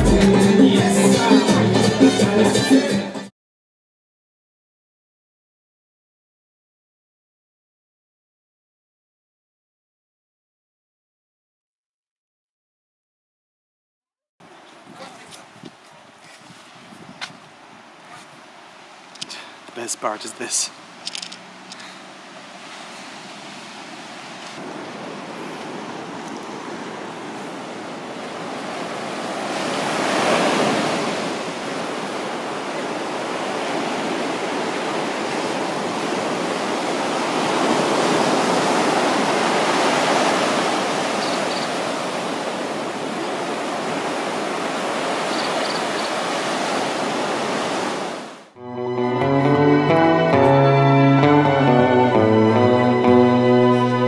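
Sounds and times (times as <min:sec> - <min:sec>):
ocean surf washing on beach: 0:14.5 - 0:48.6.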